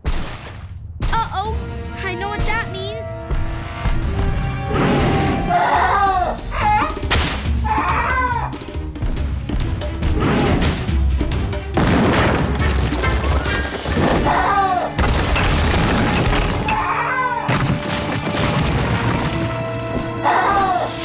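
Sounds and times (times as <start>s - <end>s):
dramatic music: 1.0s - 21.0s
booming and crashing effects: 11.7s - 14.3s.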